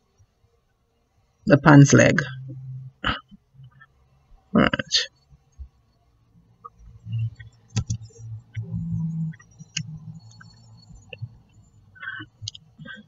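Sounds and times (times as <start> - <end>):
sharp clicks: 7.4 - 8.7, 9.3 - 11.3.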